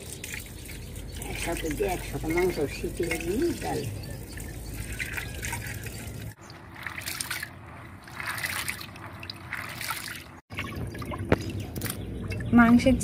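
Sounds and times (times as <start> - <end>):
hand swishing in basin water: 4.7 - 10.7.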